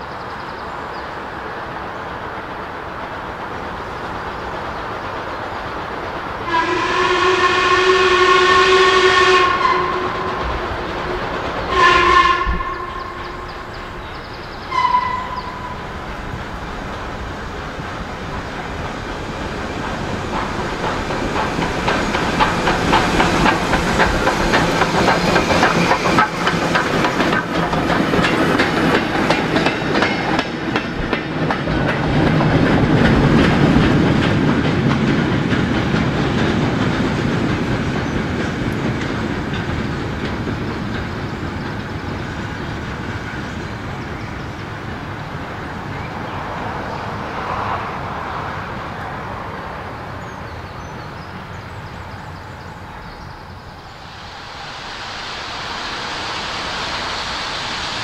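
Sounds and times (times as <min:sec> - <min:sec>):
train wheels clattering: 0:02.2 - 0:47.8
steam locomotive whistle: 0:06.4 - 0:14.0, 0:14.6 - 0:16.0.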